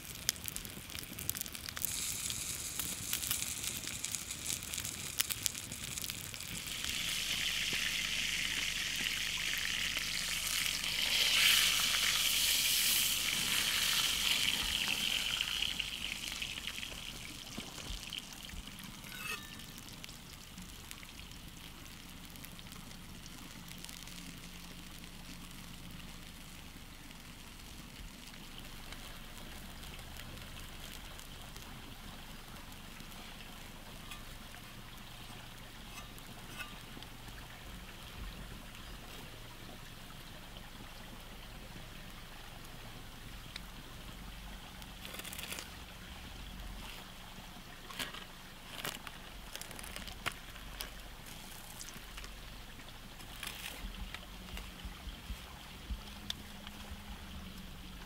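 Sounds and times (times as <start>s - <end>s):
fire pops: 0.0s - 7.9s, 9.9s - 22.7s, 47.8s - 52.4s
campfire crackling: 0.0s - 58.0s
sizzling hiss: 0.0s - 58.0s.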